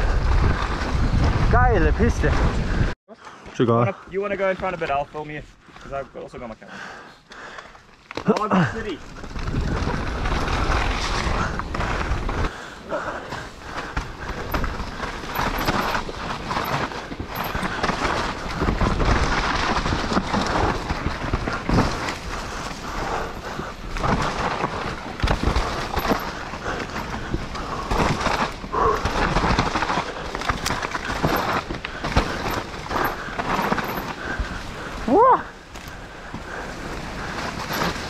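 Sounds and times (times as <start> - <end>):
bike tyres rolling over dirt: 0.0 - 2.9, 4.1 - 38.0
bike chain and frame rattling: 8.4 - 38.0.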